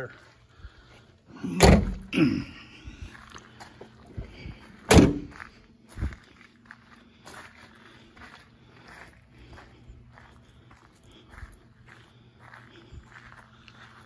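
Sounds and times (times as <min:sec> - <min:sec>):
footsteps on gravel: 0:00.0 - 0:14.0
van doors shutting with metal thunks: 0:01.4 - 0:02.3, 0:04.7 - 0:05.4.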